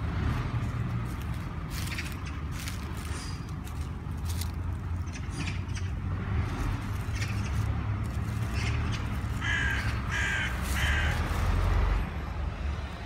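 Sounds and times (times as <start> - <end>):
crow cawing: 8.6 - 11.5.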